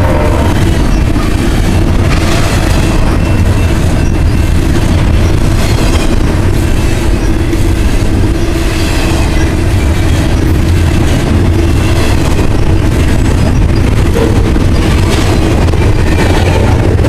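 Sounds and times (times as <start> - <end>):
train wheels rumbling on rail: 0.0 - 17.0
high wheel squeal: 2.3 - 10.5.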